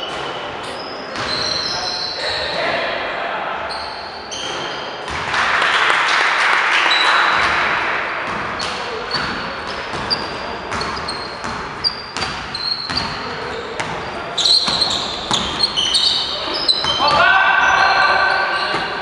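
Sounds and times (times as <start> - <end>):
sneakers squeaking on gym floor: 0.0 - 2.6, 3.7 - 5.2, 8.3 - 19.0
loud crowd noise: 0.0 - 19.0
basketball bouncing: 6.9 - 17.2.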